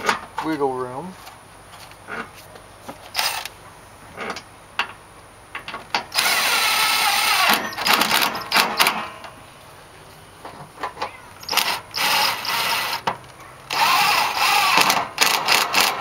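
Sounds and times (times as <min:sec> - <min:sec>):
impact driver spinning and hammering: 0:06.2 - 0:09.2.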